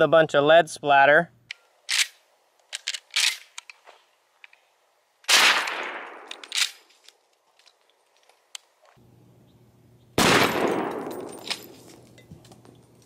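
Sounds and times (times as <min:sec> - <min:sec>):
shotgun shot: 0:05.3 - 0:06.4, 0:10.2 - 0:11.5.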